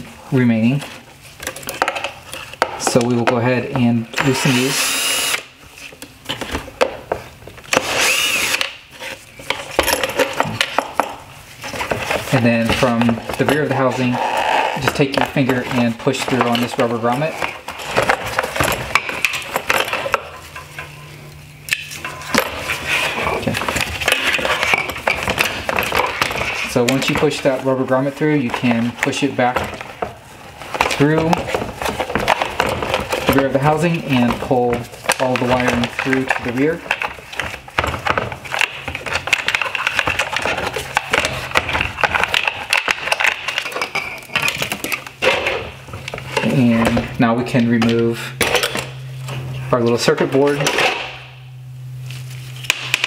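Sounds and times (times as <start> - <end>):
plastic and cable rattling: 28.5 - 47.1.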